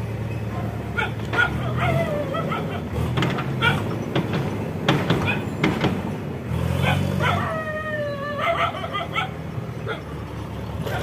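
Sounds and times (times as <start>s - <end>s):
diesel engine running: 0.0s - 11.0s
dog barking: 0.5s - 3.0s, 3.6s - 3.9s, 5.2s - 5.6s, 6.8s - 7.6s, 8.3s - 10.1s
dog whining: 1.0s - 2.9s.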